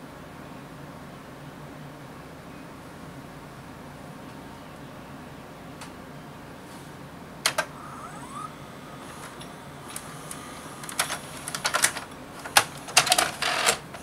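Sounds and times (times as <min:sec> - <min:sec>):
small motor whining: 0:07.7 - 0:11.5.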